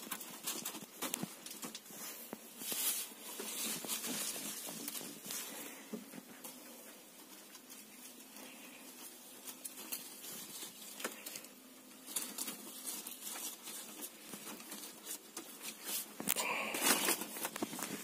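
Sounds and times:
leafy branch rustling: 0.0 - 18.0.

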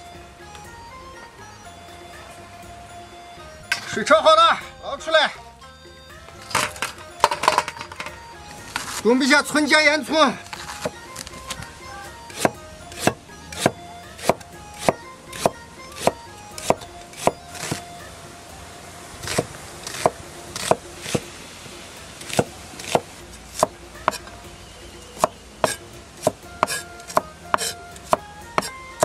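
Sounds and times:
knife chopping on cutting board: 12.3 - 17.8, 19.2 - 21.2, 22.2 - 24.2, 25.2 - 28.8.

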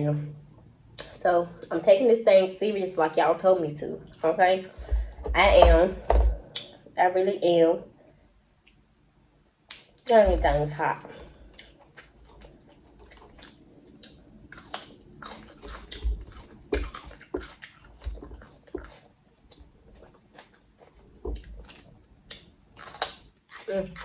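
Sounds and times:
close chewing with wet mouth clicks: 11.1 - 24.0.

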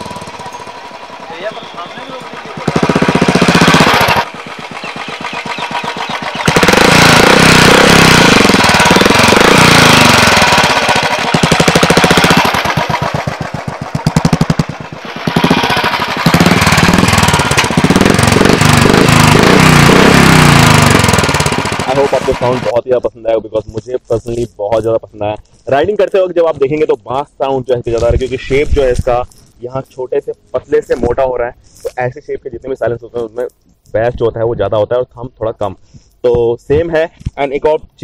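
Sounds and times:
motorcycle engine revving: 0.0 - 22.8.

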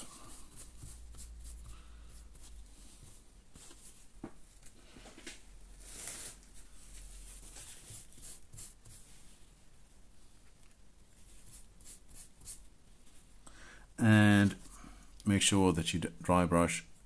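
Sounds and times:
paintbrush rustling on paper towel: 0.0 - 4.2, 5.7 - 9.6, 10.2 - 13.4.

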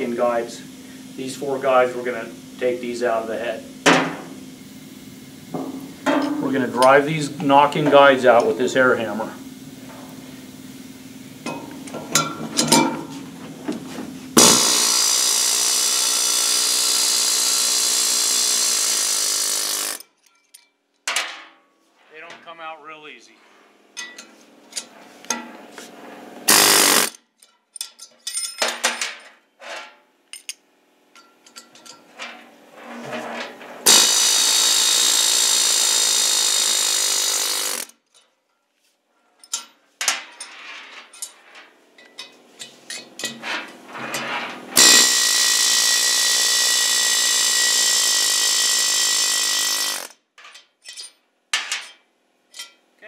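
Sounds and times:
pneumatic air hammer: 3.8 - 4.9, 11.4 - 20.1, 26.4 - 27.2, 33.0 - 38.0, 42.6 - 50.2
metal clinks and knocks: 5.6 - 7.0, 11.4 - 14.8, 20.0 - 21.6, 24.0 - 25.5, 27.4 - 34.2, 38.0 - 45.0, 50.4 - 52.8.

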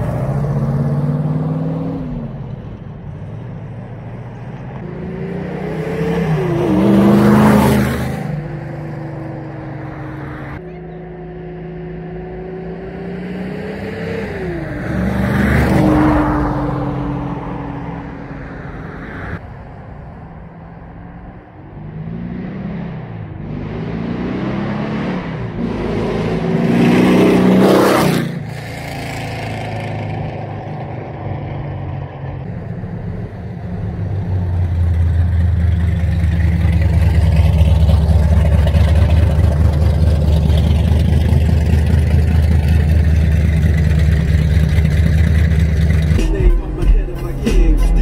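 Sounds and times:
deep exhaust rumble: 31.8 - 48.0.

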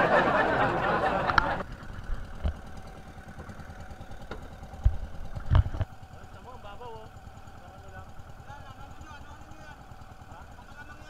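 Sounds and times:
boat engine running: 0.0 - 11.0
light knocks: 4.2 - 5.9.

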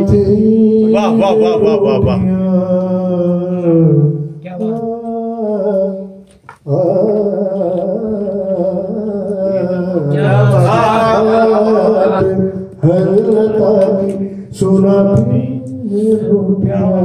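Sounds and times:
man singing into a microphone: 0.0 - 17.0.

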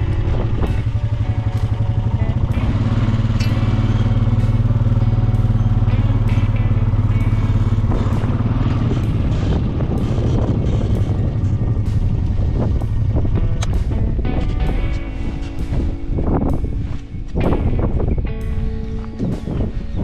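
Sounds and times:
quad bike engine running: 0.0 - 20.0.

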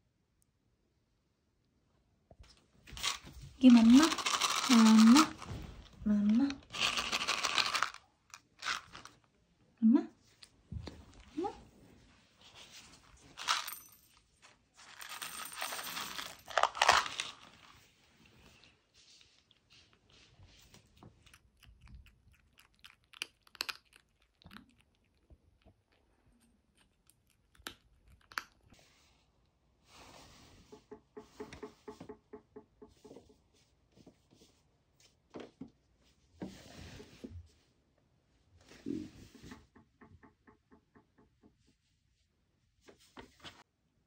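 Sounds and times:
kibble pouring into plastic bowl: 2.9 - 5.5, 6.6 - 8.0, 14.8 - 17.6
plastic bag crinkling: 3.0 - 9.2, 14.8 - 17.8
kitten crunching kibble: 3.8 - 5.6, 6.6 - 9.2, 16.5 - 17.7, 19.4 - 28.7.

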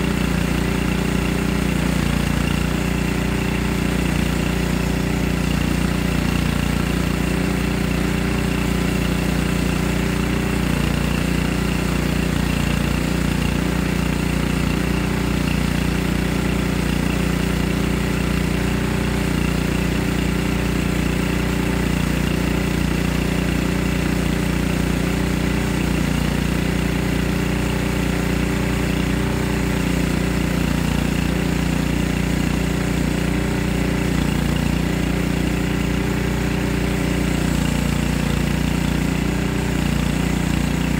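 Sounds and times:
small gasoline engine running: 0.0 - 40.9.

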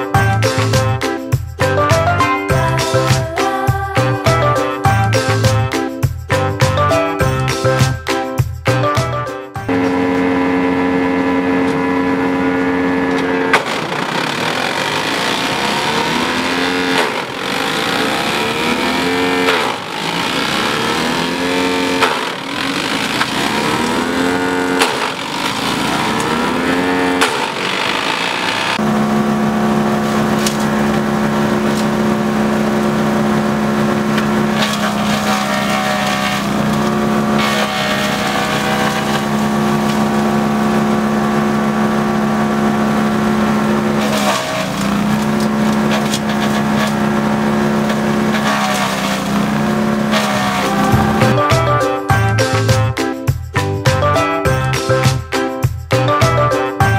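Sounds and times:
wood chipper engine chipping branches: 9.7 - 51.8.

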